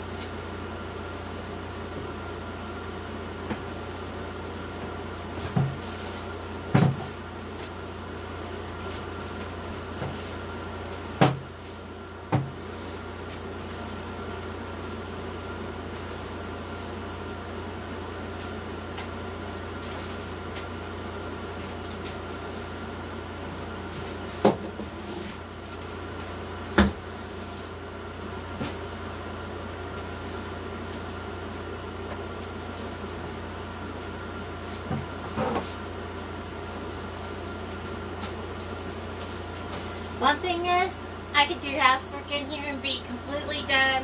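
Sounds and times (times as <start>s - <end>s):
broom sweeping floor: 0.0s - 40.9s
air conditioner hum: 0.0s - 44.0s.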